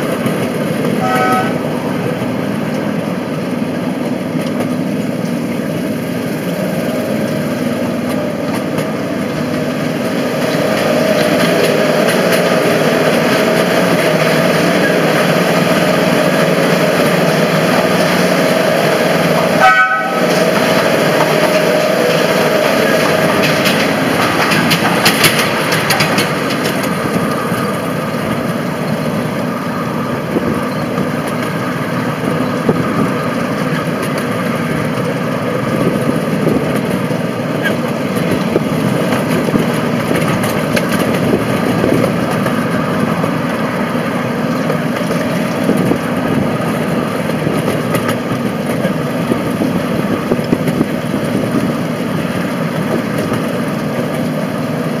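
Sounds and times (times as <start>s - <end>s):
miniature diesel locomotive running: 0.0s - 55.0s
wheels clicking over rail joints: 0.0s - 55.0s.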